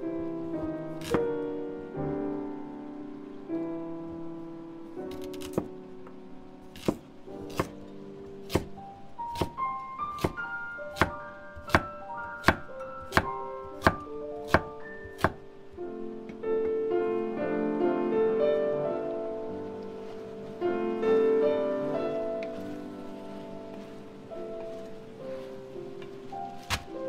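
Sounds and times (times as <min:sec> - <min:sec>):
slow piano music: 0:00.0 - 0:27.0
cleaver chopping on wooden board: 0:06.8 - 0:07.7, 0:08.4 - 0:08.7, 0:09.4 - 0:10.4, 0:11.0 - 0:15.4.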